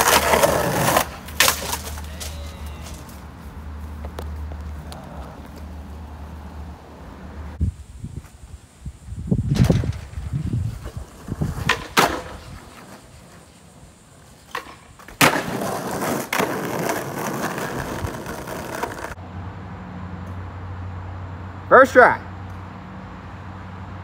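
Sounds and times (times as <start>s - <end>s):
skateboard clacking on concrete: 0.0s - 3.2s, 10.8s - 13.5s, 14.4s - 19.2s
skateboard landing: 0.0s - 3.2s, 9.4s - 19.2s
skateboard wheels rolling on asphalt: 0.0s - 19.2s.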